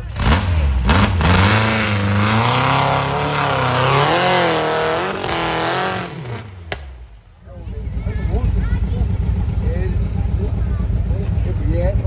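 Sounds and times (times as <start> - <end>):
buggy engine revving hard: 0.0 - 7.0.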